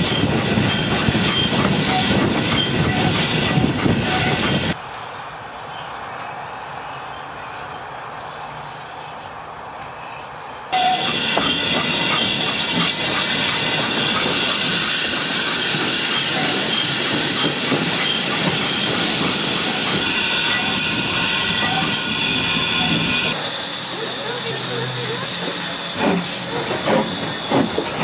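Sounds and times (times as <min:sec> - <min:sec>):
steam locomotive running: 0:00.0 - 0:04.8, 0:10.7 - 0:28.0
wheels clattering on rail joints: 0:00.0 - 0:04.8, 0:10.8 - 0:28.0
steam hissing: 0:10.8 - 0:28.0.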